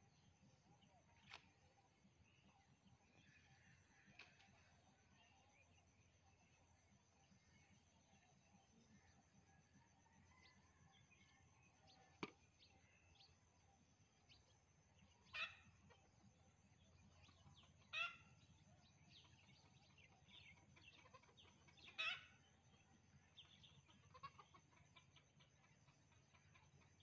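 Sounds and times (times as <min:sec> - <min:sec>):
small bird chirps: 0:16.8 - 0:27.0.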